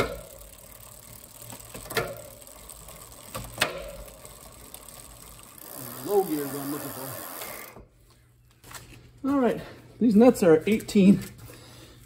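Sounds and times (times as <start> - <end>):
bike chain running over gears: 0.0 - 7.8.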